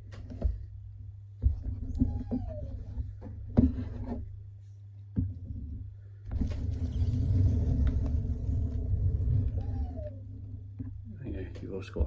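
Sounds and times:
low rumble: 6.3 - 11.2.

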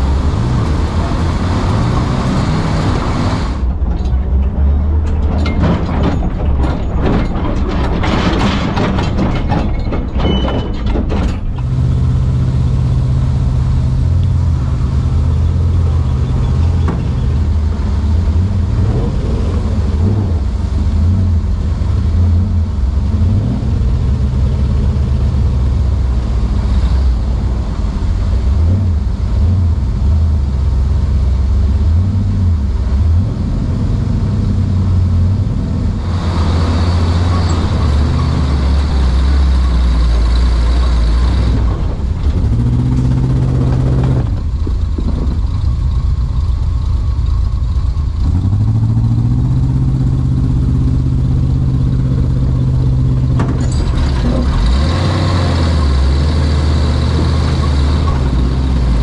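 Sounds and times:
truck engine droning: 0.0 - 59.0
rattles and knocks: 3.6 - 12.4, 15.2 - 18.8, 36.1 - 59.0.

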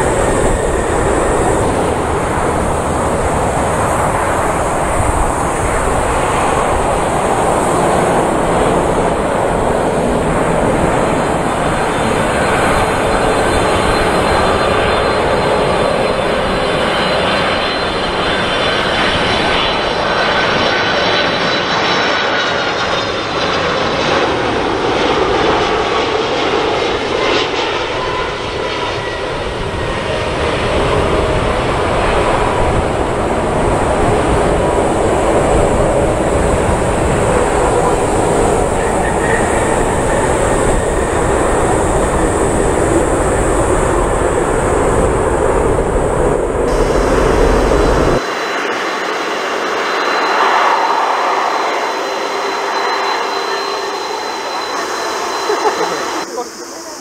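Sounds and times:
jet engines roaring: 0.0 - 57.0
faint engine whine: 24.2 - 57.0.

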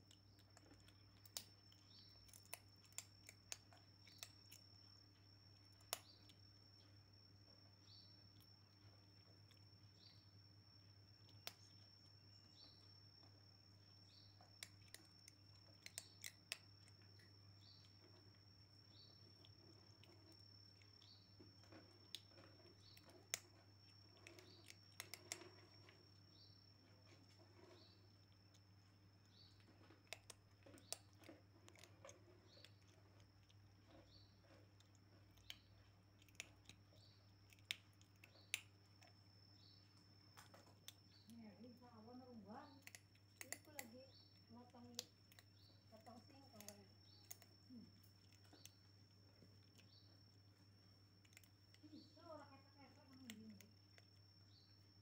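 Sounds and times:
kitten crunching dry food: 0.0 - 41.3, 42.7 - 52.0, 53.0 - 55.0
faint steady hum: 0.0 - 55.0
cat crunching dry food: 0.1 - 4.9, 19.2 - 26.0, 29.6 - 39.2, 50.6 - 51.8.

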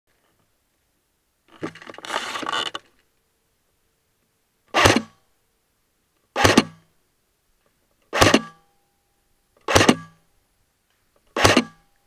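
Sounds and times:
airsoft rifle shots: 4.7 - 5.2, 6.4 - 6.9, 8.1 - 8.6, 9.6 - 10.2, 11.3 - 11.9.

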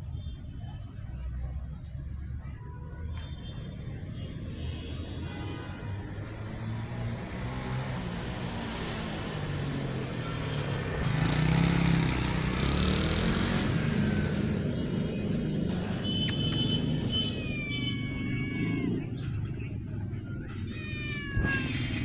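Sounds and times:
vehicle passing on road: 5.9 - 22.0.

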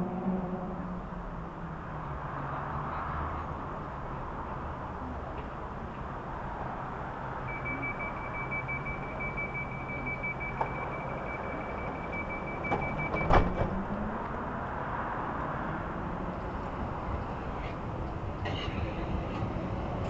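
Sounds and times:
rapid high door warning beeps: 7.5 - 13.6
sliding doors shutting thump: 12.7 - 13.8.

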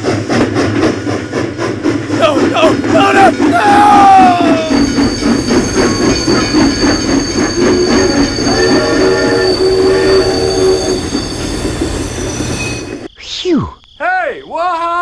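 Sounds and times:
toy train whine and rattle: 2.2 - 13.1.

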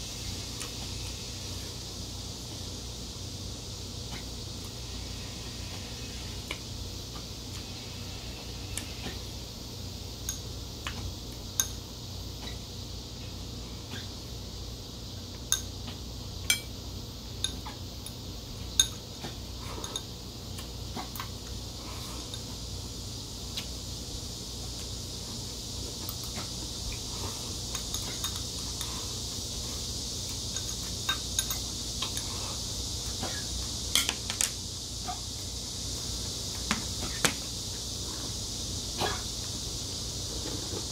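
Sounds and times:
faint hiss: 0.0 - 40.9.

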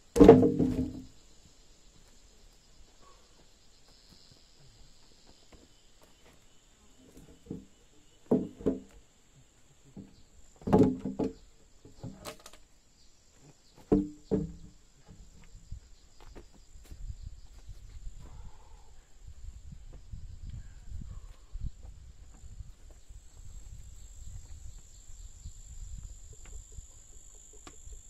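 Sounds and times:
knocks and thuds: 0.0 - 1.2, 7.4 - 9.0, 10.0 - 11.4, 13.8 - 15.2
faint high insect drone: 0.0 - 28.0.

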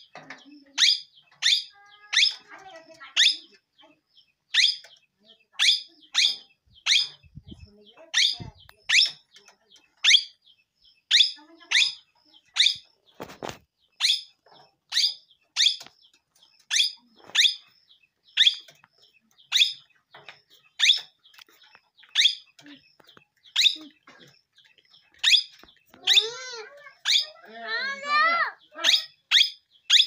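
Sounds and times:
parrot squawking: 0.8 - 2.5, 25.2 - 30.0.

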